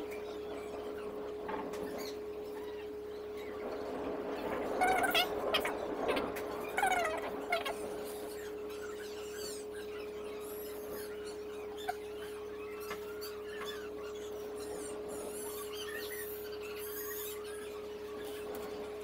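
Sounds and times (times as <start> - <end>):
small animal chirping: 4.4 - 19.0.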